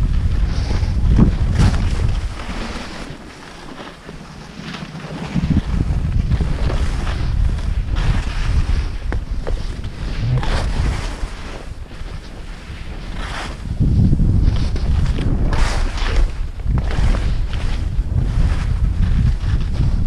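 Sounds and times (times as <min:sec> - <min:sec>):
wind buffeting microphone: 0:00.0 - 0:03.2, 0:04.2 - 0:20.0
skis sliding on snow: 0:00.1 - 0:20.0.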